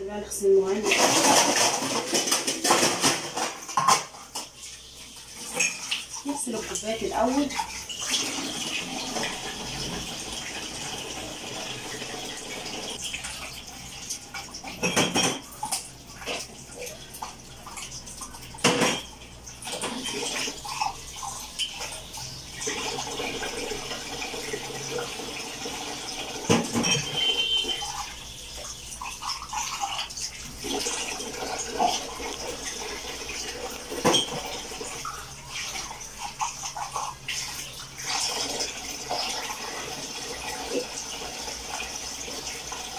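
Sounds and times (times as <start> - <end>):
dishware clinking against sink: 0.8 - 4.6, 5.5 - 6.8, 14.6 - 16.4, 18.6 - 19.2, 26.4 - 28.1, 33.9 - 34.6.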